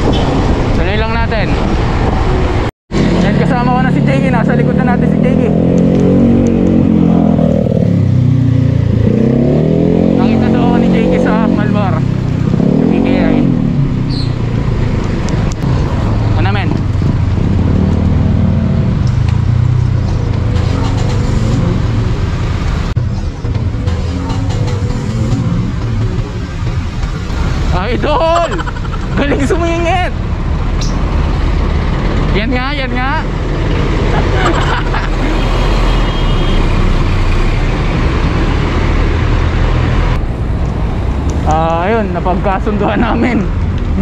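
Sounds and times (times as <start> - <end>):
wind rushing over microphone: 0.0 - 3.2, 12.0 - 23.6
road traffic rumble: 0.0 - 44.0.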